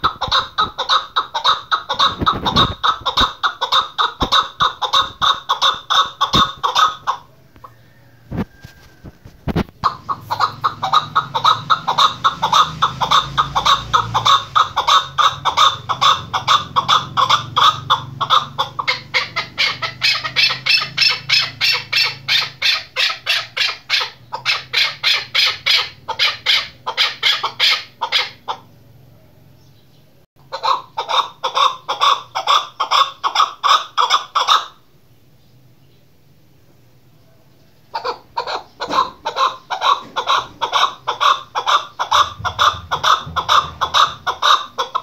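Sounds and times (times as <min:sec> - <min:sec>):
partridge calling rapid notes: 0:00.0 - 0:07.3, 0:09.8 - 0:28.7, 0:38.0 - 0:45.0.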